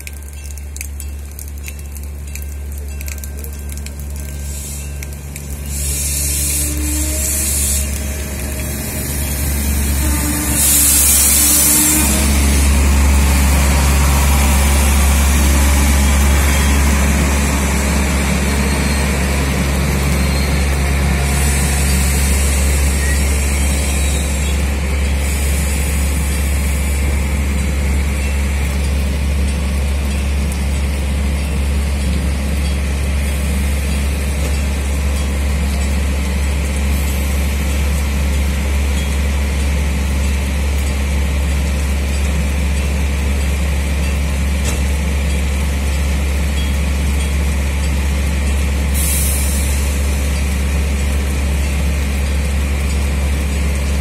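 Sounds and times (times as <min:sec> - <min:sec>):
diesel railcar idling: 0:00.0 - 0:54.0
air hiss: 0:05.7 - 0:08.2, 0:10.3 - 0:12.4.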